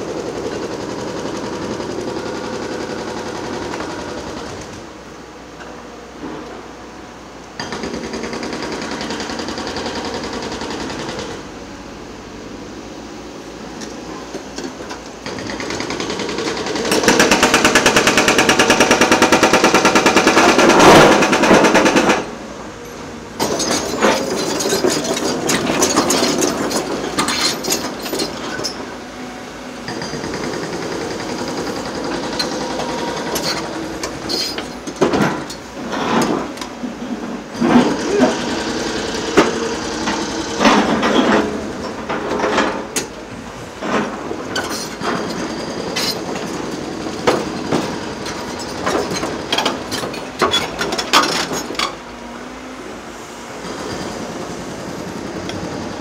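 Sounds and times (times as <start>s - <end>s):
excavator rattling: 0.0s - 5.0s, 13.6s - 52.2s
metal clanks and knocks: 23.4s - 28.9s, 31.4s - 38.0s, 39.3s - 43.2s.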